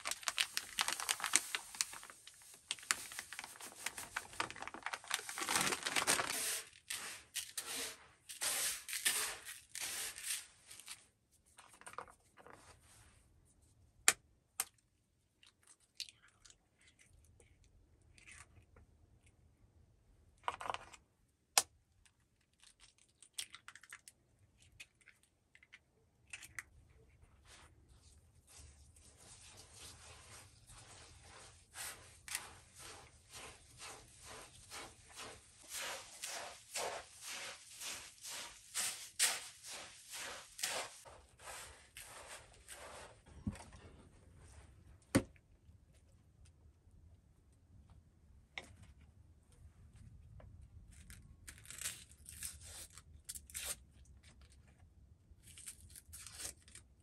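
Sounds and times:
sugar pouring into plastic bowl: 0:03.0 - 0:10.4, 0:30.8 - 0:43.0.

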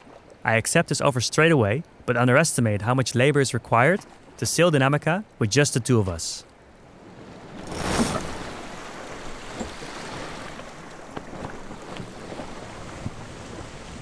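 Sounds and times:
sea waves washing: 0:00.0 - 0:14.0
wind blowing: 0:06.6 - 0:14.0.

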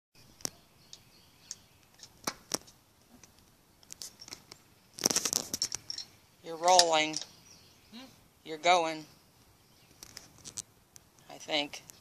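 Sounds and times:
rattling clicks and rustle: 0:02.0 - 0:07.3.

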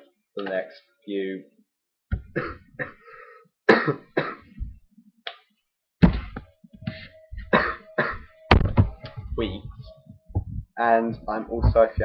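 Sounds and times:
person coughing: 0:02.3 - 0:04.6, 0:07.5 - 0:08.3.

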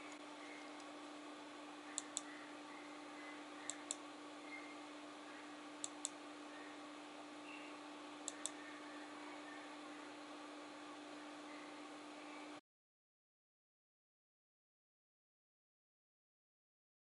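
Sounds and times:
faint steady hum: 0:00.0 - 0:12.6
sharp light clicks: 0:02.0 - 0:02.3, 0:03.7 - 0:04.0, 0:05.8 - 0:06.2, 0:08.2 - 0:08.6.

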